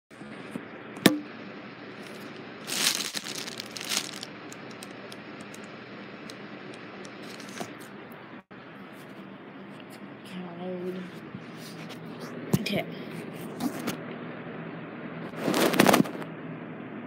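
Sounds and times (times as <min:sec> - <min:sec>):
rustling and crinkling: 0:02.0 - 0:05.7, 0:07.1 - 0:08.0, 0:15.3 - 0:16.2.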